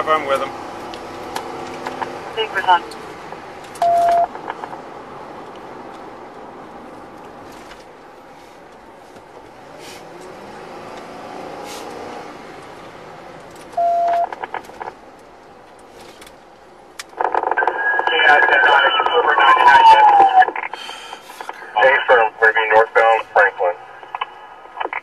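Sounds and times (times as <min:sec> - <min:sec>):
car engine and road noise: 0:00.0 - 0:25.0
police radio beep: 0:02.4 - 0:02.8, 0:03.8 - 0:04.6, 0:13.8 - 0:14.6, 0:17.2 - 0:20.9, 0:21.5 - 0:25.0.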